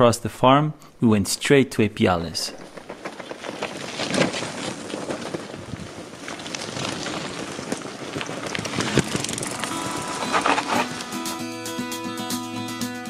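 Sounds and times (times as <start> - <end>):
bicycle tyres crunching on grit: 2.5 - 11.6
bicycle clicks and rattles: 2.6 - 11.3.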